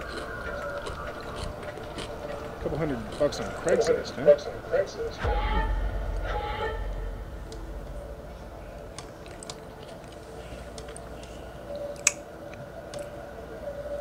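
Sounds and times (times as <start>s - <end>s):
person chewing fries: 0.0s - 4.0s, 9.2s - 12.2s.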